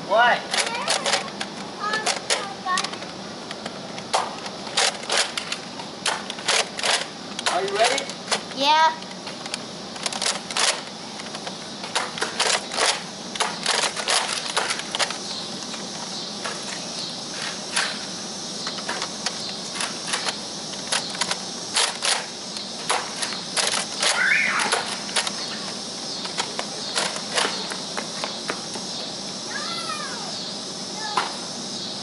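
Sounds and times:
steady high hiss: 0.0s - 32.0s
toy blasters clacking and snapping: 0.5s - 15.2s, 18.7s - 25.4s, 26.2s - 27.7s.

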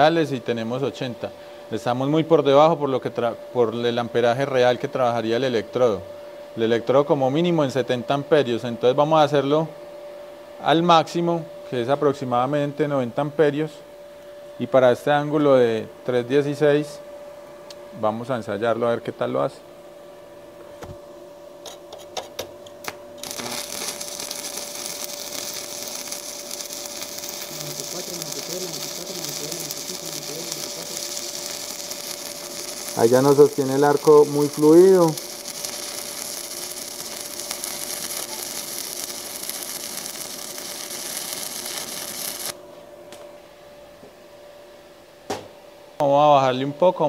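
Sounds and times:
welding rod tapping: 21.6s - 42.6s
welding arc hissing: 22.8s - 42.6s.

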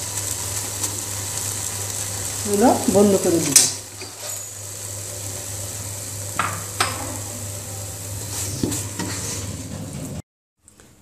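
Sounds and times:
spatula scraping paste in pan: 8.3s - 9.7s.

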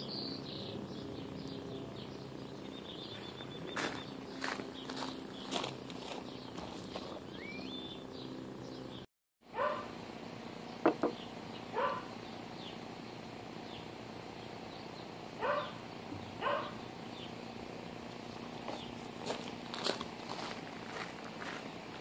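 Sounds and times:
small birds chirping: 0.0s - 9.9s, 10.6s - 22.0s
dog barking: 9.5s - 9.9s, 11.7s - 12.1s, 15.4s - 15.8s, 16.4s - 16.8s.

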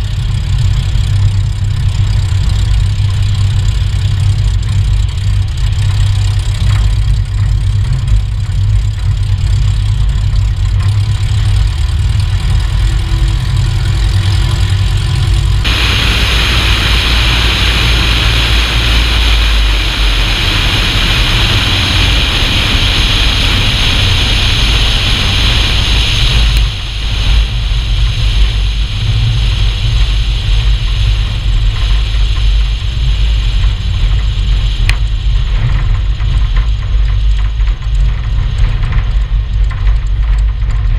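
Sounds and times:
aircraft engine and propeller drone: 0.0s - 40.9s
heavy low landing gear rumble: 0.0s - 40.9s
loud hiss: 14.2s - 30.6s.

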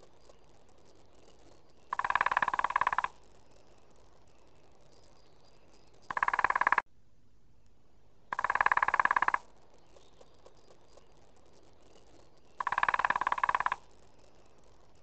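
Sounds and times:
woodpecker drumming on wood: 0.0s - 3.4s, 5.2s - 6.8s, 8.3s - 14.9s.

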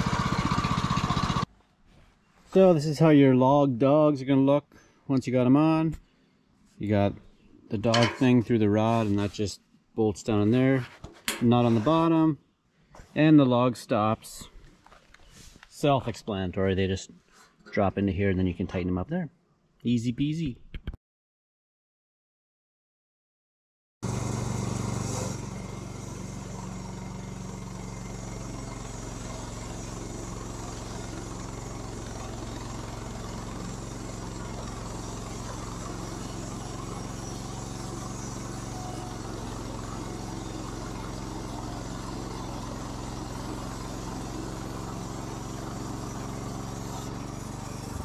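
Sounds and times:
saw cutting through log: 0.0s - 1.5s, 24.0s - 48.0s
sawmill engine running: 0.0s - 1.5s, 24.0s - 48.0s.

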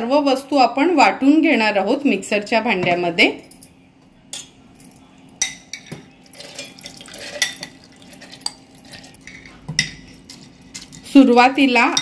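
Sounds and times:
metal spoon clinking on glass: 4.3s - 11.2s.

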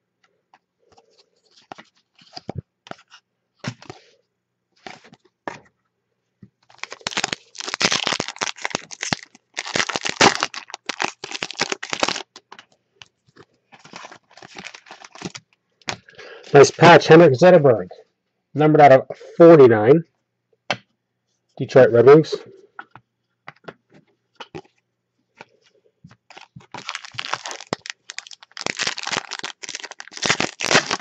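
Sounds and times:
wrapper tearing and crinkling: 6.7s - 12.6s, 13.8s - 15.4s, 26.3s - 31.0s.

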